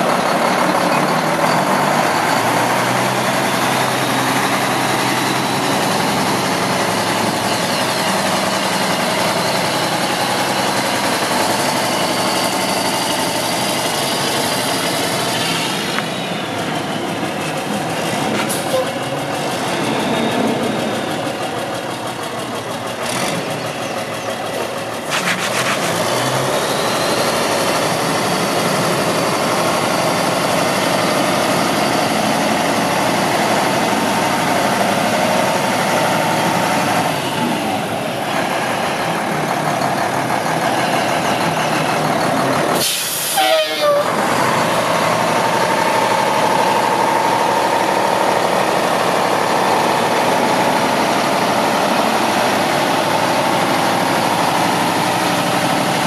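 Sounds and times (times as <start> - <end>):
truck diesel engine running: 0.0 - 56.0
air brake hiss: 42.8 - 43.8.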